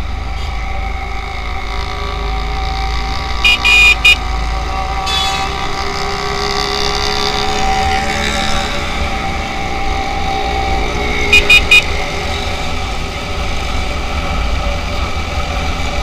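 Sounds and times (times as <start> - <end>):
high-pitched vehicle horn toots: 3.4 - 4.3, 11.3 - 12.0.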